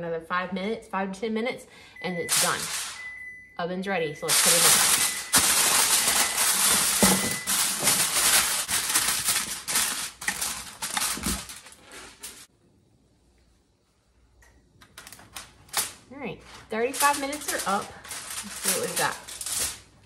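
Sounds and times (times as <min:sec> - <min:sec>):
aluminium foil crinkling: 0:02.3 - 0:03.0, 0:04.2 - 0:12.5, 0:14.8 - 0:20.0.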